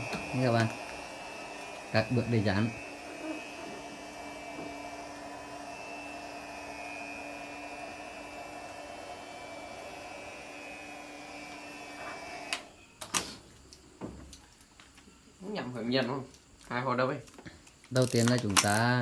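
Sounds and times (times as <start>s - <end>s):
small electric motor whirring: 0.0s - 12.7s.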